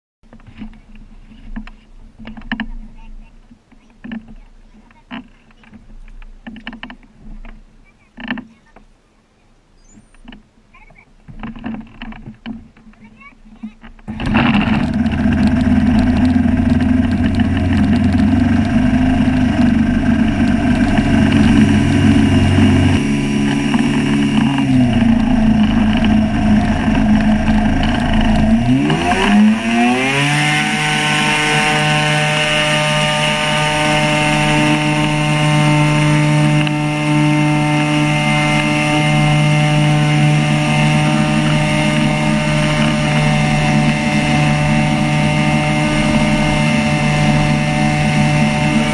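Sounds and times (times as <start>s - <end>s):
propeller engine running: 11.3s - 48.9s.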